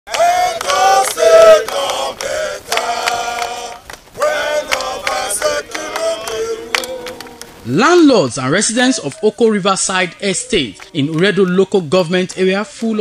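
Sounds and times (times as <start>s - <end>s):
men singing a chant: 0.1s - 7.6s.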